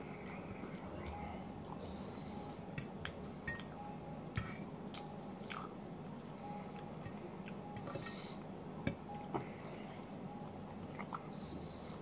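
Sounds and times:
chewing fries: 4.8 - 8.5, 10.4 - 12.0.

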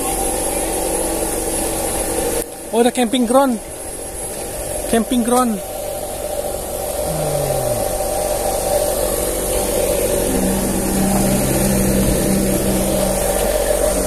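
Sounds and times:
engine humming: 3.6 - 14.0.

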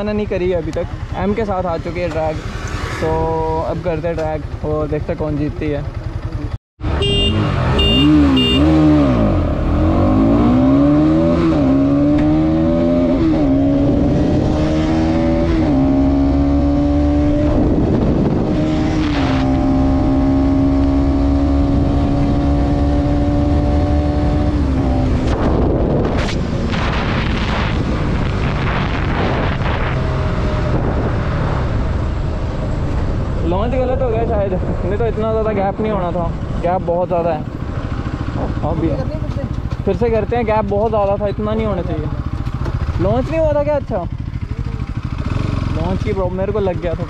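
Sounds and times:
motorcycle engine revving: 0.0 - 47.0
wind rush: 13.1 - 36.6.

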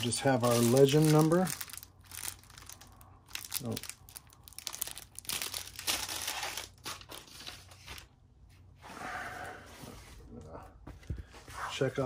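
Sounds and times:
plastic bags crinkling: 0.0 - 7.8.

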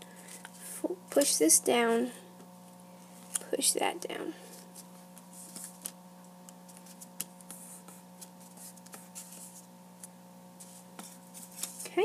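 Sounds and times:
steady low hum: 0.0 - 12.0
paper handling: 4.5 - 12.0.

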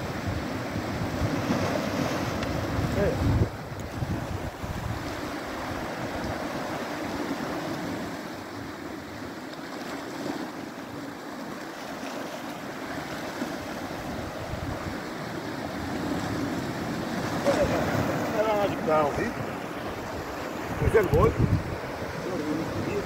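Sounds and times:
wind buffeting microphone: 0.0 - 8.8, 13.6 - 23.0
sea surf breaking on rocks: 0.0 - 23.0.

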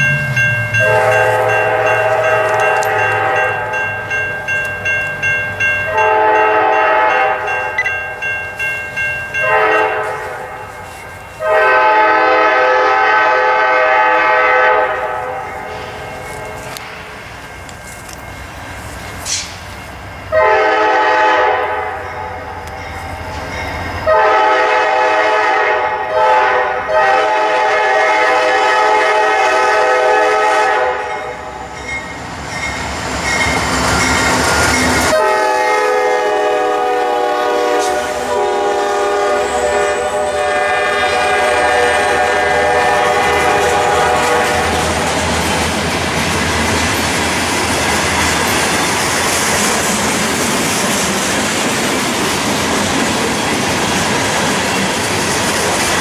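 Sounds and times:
train horn blasts: 0.7 - 3.8, 5.9 - 7.8, 9.4 - 16.8, 20.3 - 22.3, 24.0 - 31.7, 34.5 - 45.2
wheels clacking over rail joints: 42.8 - 56.0.

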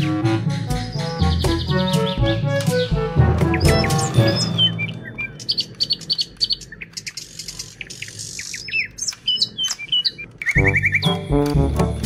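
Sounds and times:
music with rapid ticking beat: 0.0 - 4.9, 10.4 - 12.0
small birds chirping: 0.0 - 11.8.

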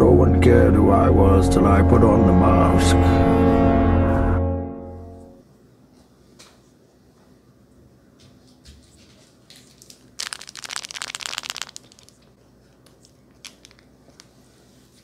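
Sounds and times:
plastic packet crinkling: 9.7 - 14.3.

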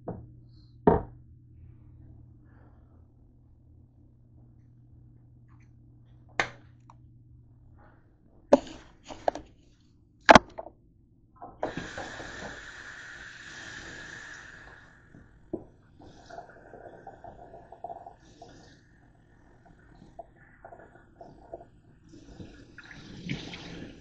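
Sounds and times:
steady hissing: 11.6 - 22.8.

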